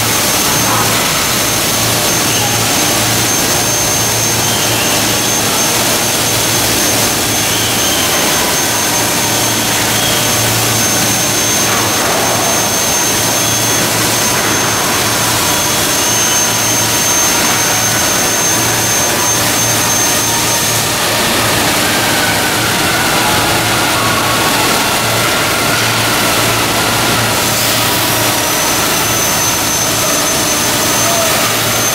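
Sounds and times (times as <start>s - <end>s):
factory machinery noise: 0.0s - 31.9s
high whine: 0.0s - 31.9s.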